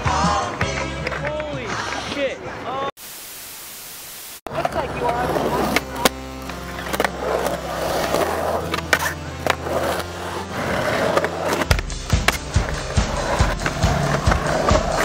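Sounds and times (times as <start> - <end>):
skateboard wheels rolling on concrete: 0.0 - 2.9, 4.5 - 15.0
background music with drum beat: 11.6 - 15.0.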